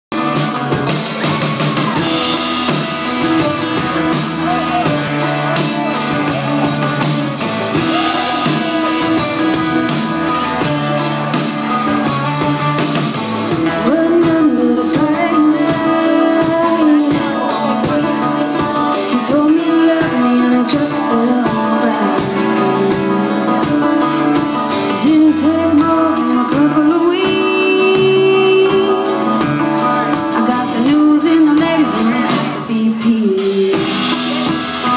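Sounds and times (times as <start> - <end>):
live band with electric guitar: 0.1 - 34.9
woman singing into microphone: 13.6 - 18.1, 19.0 - 24.3, 24.9 - 34.0.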